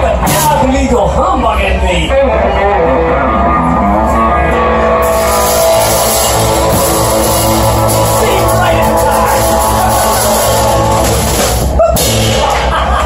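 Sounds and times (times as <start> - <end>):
live rock band playing: 0.0 - 0.9, 2.1 - 13.0.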